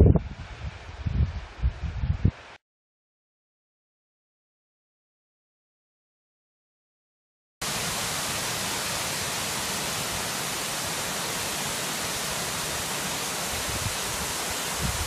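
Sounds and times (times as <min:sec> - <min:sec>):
wind bumps on microphone: 0:00.0 - 0:02.6, 0:13.5 - 0:15.0
waterfall rushing: 0:07.6 - 0:15.0.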